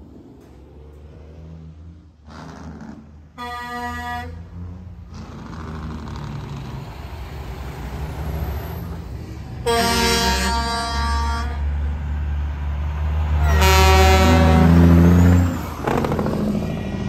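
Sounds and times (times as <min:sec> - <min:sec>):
truck engine rumble: 0:00.0 - 0:17.0
truck horn blasts: 0:03.3 - 0:04.5, 0:09.6 - 0:11.8, 0:13.4 - 0:15.6.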